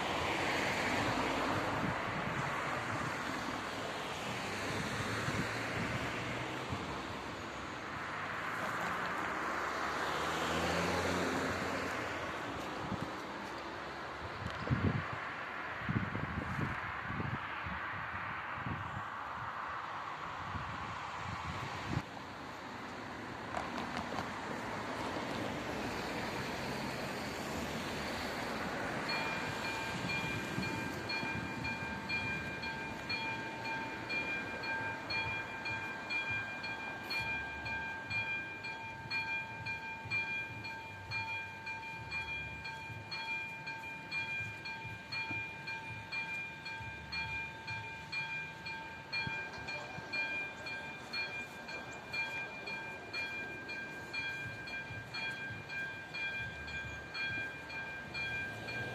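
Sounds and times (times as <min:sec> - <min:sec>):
car driving past: 0:08.4 - 0:12.6
level crossing warning bell: 0:25.8 - 0:58.9.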